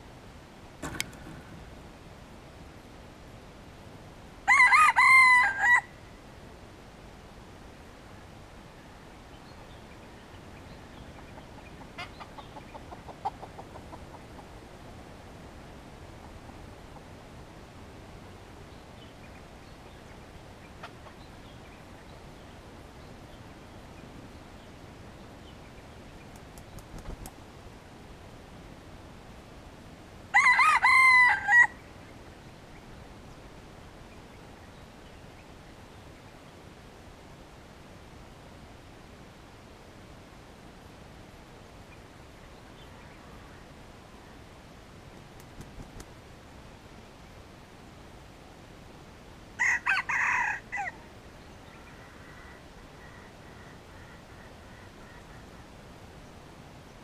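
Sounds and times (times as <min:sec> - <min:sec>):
faint steady hiss: 0:00.0 - 0:57.0
rooster crowing: 0:04.4 - 0:06.0, 0:30.3 - 0:31.8, 0:49.6 - 0:51.0
rooster clucking: 0:11.2 - 0:14.5.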